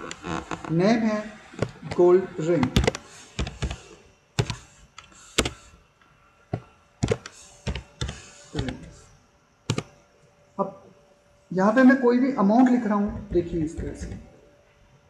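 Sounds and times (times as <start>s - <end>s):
keyboard keystroke clicks: 4.4s - 5.6s, 9.7s - 9.9s.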